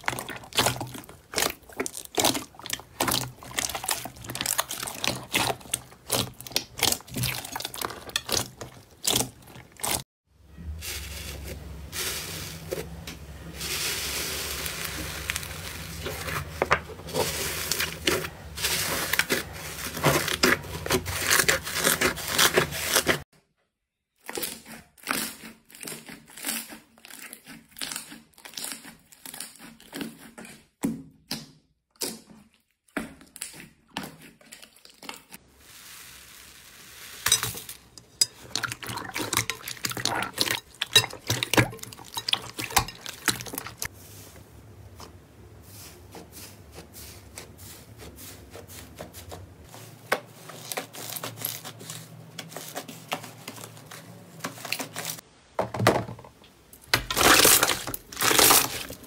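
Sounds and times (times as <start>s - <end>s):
slime crackling and crinkling: 0.0s - 10.0s, 10.8s - 23.2s, 33.3s - 55.2s, 56.8s - 59.0s.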